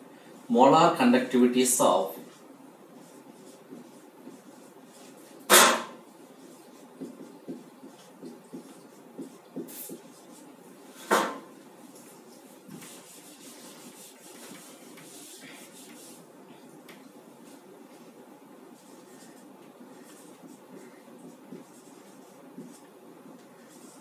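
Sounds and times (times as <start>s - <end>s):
marker scratching on whiteboard: 2.2s - 16.7s, 18.8s - 24.0s
sharp knocks: 5.5s - 6.0s.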